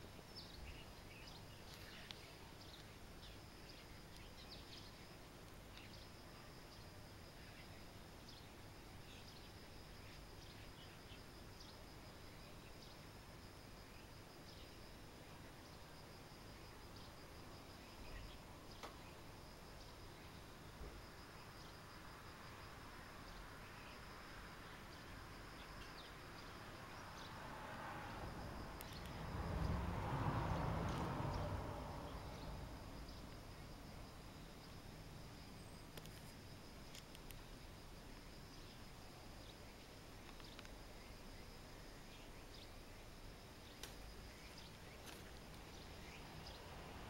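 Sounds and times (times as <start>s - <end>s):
high insect trill: 0.1s - 47.0s
soft rustle: 1.5s - 4.8s, 35.8s - 38.3s, 43.6s - 46.6s
small clicks: 36.0s - 36.3s.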